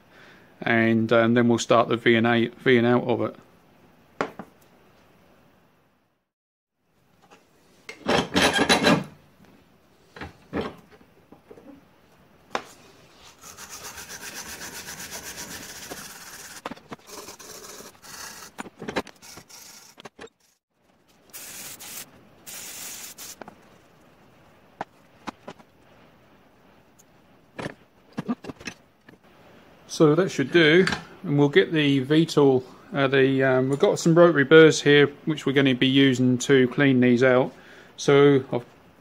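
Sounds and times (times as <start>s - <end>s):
wire brush scrubbing metal: 13.2s - 20.6s.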